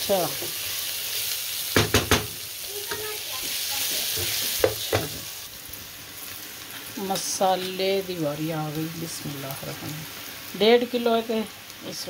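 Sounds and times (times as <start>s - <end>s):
onions sizzling in oil: 0.0s - 12.0s
wooden spatula knocking on pot: 1.8s - 2.4s, 4.2s - 5.1s.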